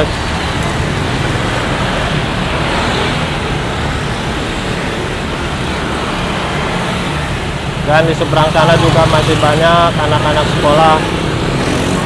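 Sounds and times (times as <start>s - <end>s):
minibuses passing: 0.0s - 12.0s
motor scooters passing: 0.0s - 12.0s.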